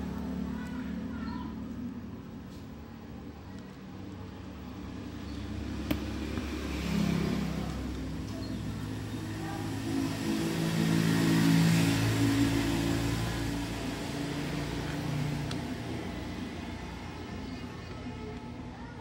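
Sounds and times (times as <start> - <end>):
vehicle engine running: 0.0 - 19.0.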